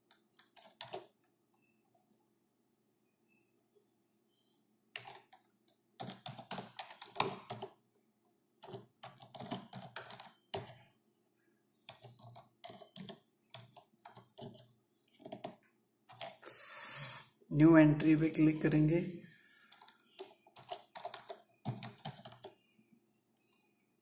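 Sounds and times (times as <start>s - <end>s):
typing on computer keyboard: 0.0s - 1.2s, 4.9s - 7.8s, 8.6s - 10.9s, 11.8s - 16.4s, 19.7s - 22.6s.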